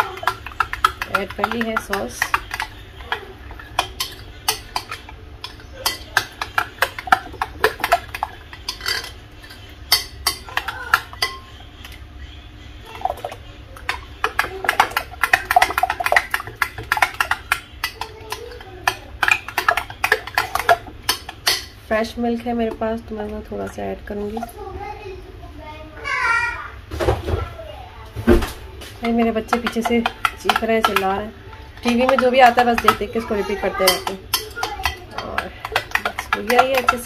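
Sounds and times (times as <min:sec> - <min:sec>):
metal spoon clinking in a bowl: 0:00.0 - 0:12.0, 0:13.9 - 0:21.8, 0:29.0 - 0:37.0.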